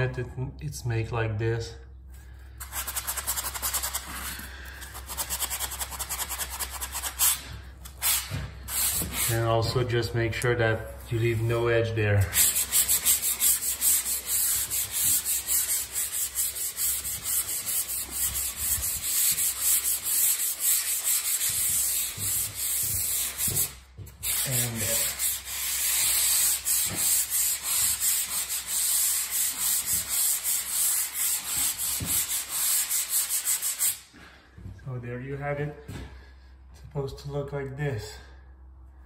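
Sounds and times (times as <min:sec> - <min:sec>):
sanding block rasping on drywall: 0:02.6 - 0:09.8, 0:12.3 - 0:34.0.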